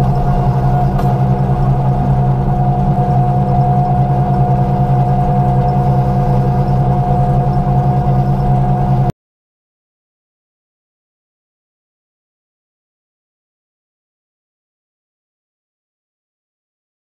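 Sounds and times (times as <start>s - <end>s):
combine harvester running: 0.0s - 9.1s.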